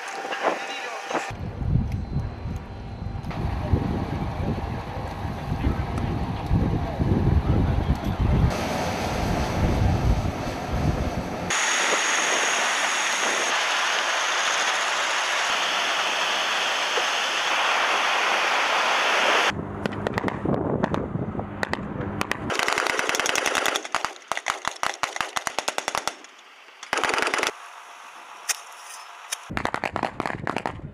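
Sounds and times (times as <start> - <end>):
low rumble and rushing noise: 0.0 - 22.5
machine-gun fire: 21.6 - 27.6, 29.5 - 30.8.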